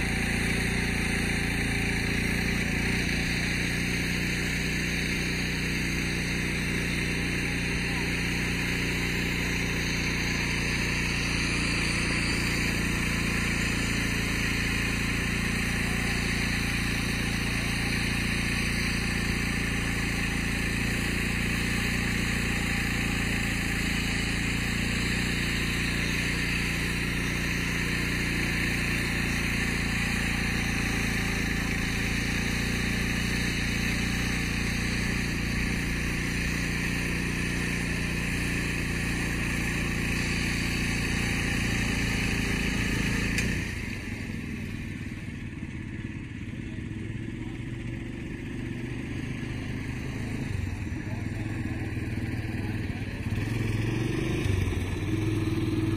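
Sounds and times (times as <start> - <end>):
winch engine humming: 0.0 - 44.7.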